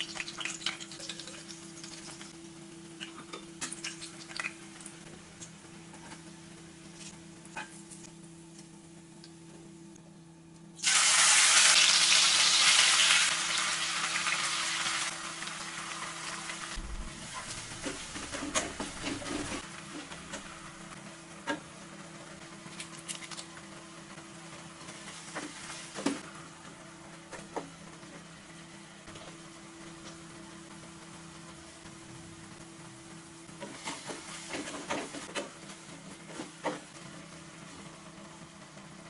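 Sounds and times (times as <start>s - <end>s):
food sizzling in hot oil: 10.8s - 19.7s
low steady hum: 13.4s - 33.6s.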